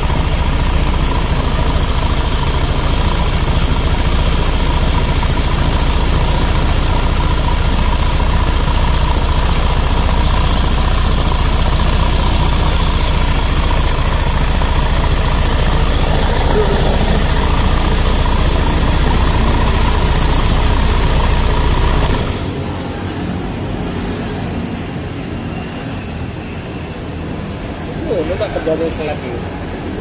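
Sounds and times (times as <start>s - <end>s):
motorcycle engine idling: 0.0s - 22.9s
valvetrain whine: 0.0s - 23.1s.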